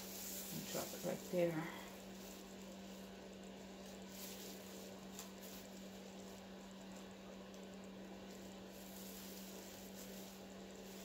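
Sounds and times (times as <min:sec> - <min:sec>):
faint hiss: 0:00.0 - 0:06.5.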